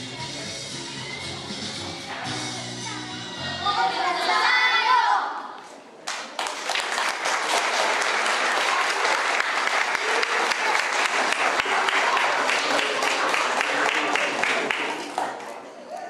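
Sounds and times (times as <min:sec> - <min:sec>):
audience applause: 0:06.1 - 0:15.6.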